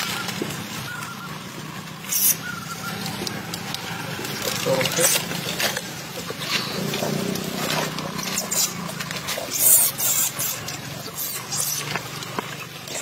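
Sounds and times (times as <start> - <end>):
baby monkey squeaking and crying: 2.1 - 3.6, 8.1 - 8.9, 9.5 - 12.0.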